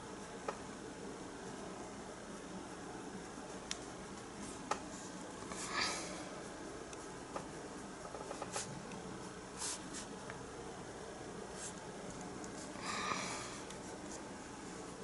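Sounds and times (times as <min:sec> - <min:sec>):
paintbrush scratching on canvas: 0:03.3 - 0:10.2.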